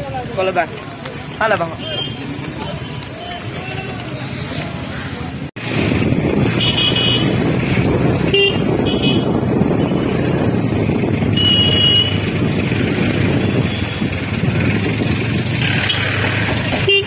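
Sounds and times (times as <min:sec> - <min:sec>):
motorcycle engine rumble: 0:00.0 - 0:17.0
vehicle horn beeps: 0:08.3 - 0:09.3, 0:11.3 - 0:12.2.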